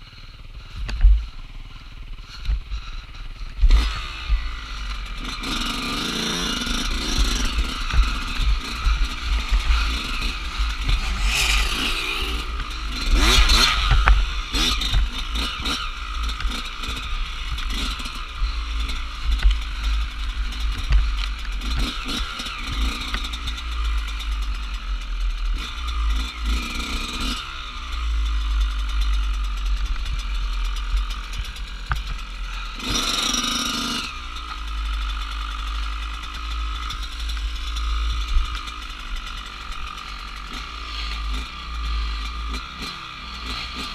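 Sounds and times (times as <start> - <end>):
low rumble of bumpy ride: 0.0 - 26.5, 27.7 - 32.9, 34.1 - 42.6
dirt bike engine revving: 0.0 - 43.9
rush of noise: 6.5 - 16.1.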